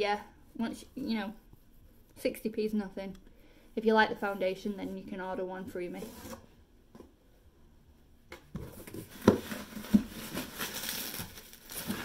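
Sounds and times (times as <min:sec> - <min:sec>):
packaging rustling: 0:08.8 - 0:12.0.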